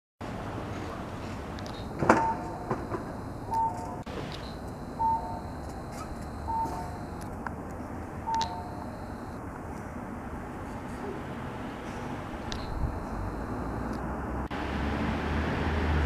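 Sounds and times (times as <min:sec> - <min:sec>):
street hum: 0:00.2 - 0:16.0
two-note electronic beep: 0:01.8 - 0:07.2, 0:08.3 - 0:09.4, 0:12.6 - 0:14.0.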